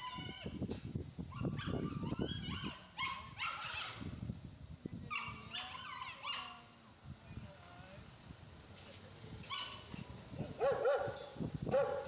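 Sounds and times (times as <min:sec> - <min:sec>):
dog whining and yipping: 0:01.4 - 0:04.0.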